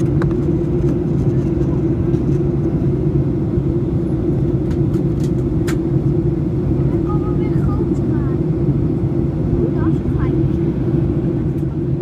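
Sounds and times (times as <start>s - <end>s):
airliner cabin engine rumble: 0.0s - 12.0s.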